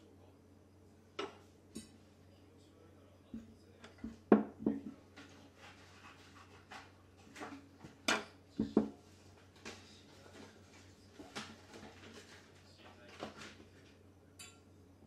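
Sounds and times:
household items knocking and clicking: 3.4 - 5.0, 7.4 - 9.0.

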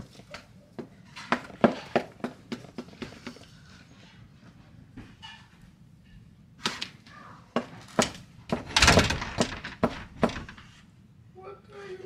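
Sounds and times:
sharp knocks and thumps: 7.6 - 10.8.

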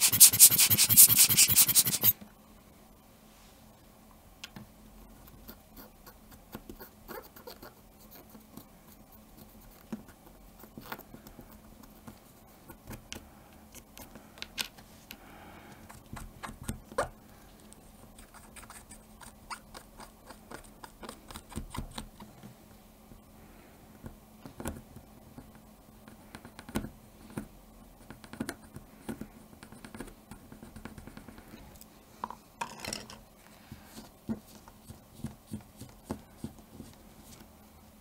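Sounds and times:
cotton swab scrubbing plastic: 0.0 - 2.2
small clicks and scratches: 5.2 - 14.8, 15.8 - 22.5.

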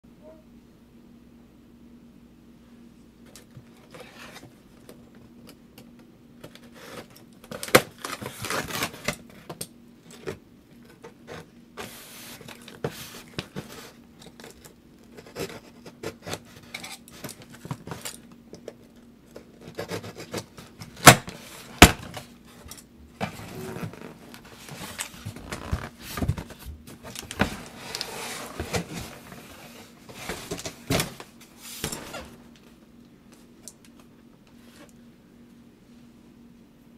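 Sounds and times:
cardboard scraping and rustling: 10.2 - 14.0, 23.2 - 32.5.

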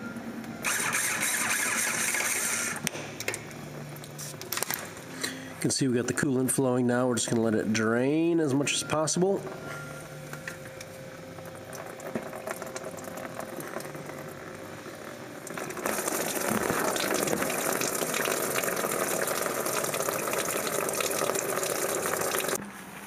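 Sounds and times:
coolant splashing into drain pan: 11.6 - 14.4, 15.4 - 22.6.

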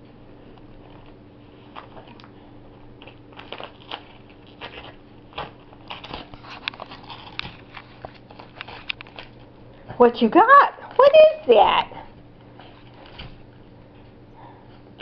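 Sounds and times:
wrapping paper crinkling: 0.7 - 9.6.

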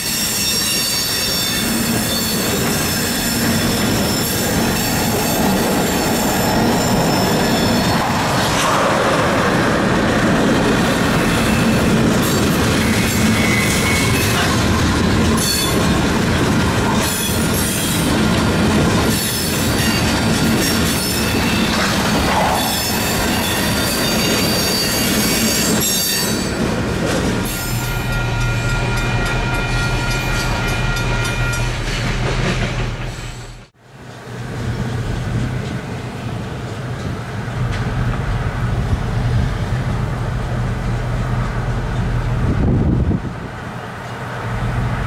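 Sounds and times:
train wheels squealing: 0.0 - 8.7, 11.0 - 16.0, 19.0 - 26.6, 27.4 - 33.7
freight train rolling past: 0.0 - 45.0
highway traffic: 0.0 - 45.0
train crossing steel bridge: 0.0 - 45.0.

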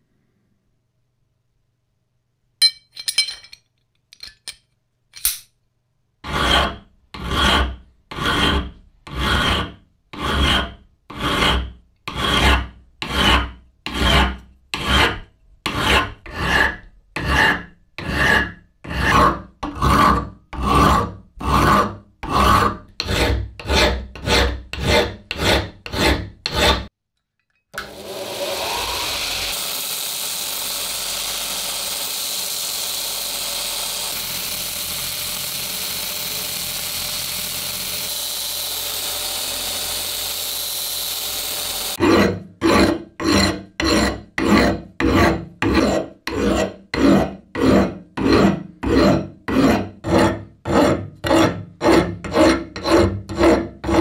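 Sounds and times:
hand file rasping on steel: 6.2 - 26.9, 37.8 - 54.0
belt grinder running: 27.8 - 42.0.

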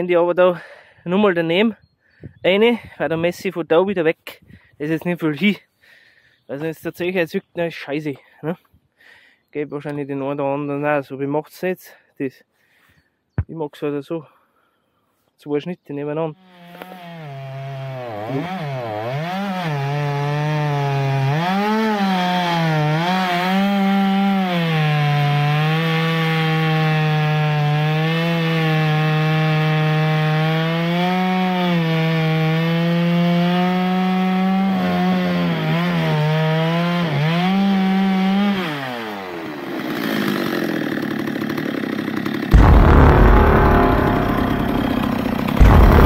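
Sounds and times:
chainsaw cutting log: 16.4 - 46.0
loud rush of noise: 42.6 - 46.0.

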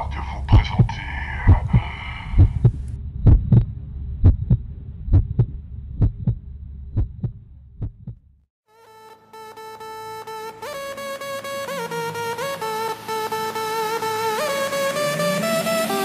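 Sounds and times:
high airy layer: 0.0 - 3.0
steady low hum: 0.0 - 8.3
heartbeat thumps: 0.5 - 8.2.

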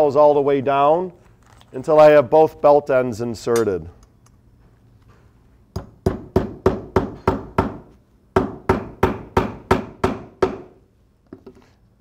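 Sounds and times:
hammer tapping nails: 5.8 - 10.8.

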